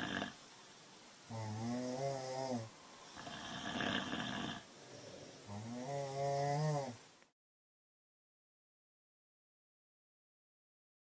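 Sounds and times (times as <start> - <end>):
person snoring: 0.0 - 0.4, 1.3 - 7.0.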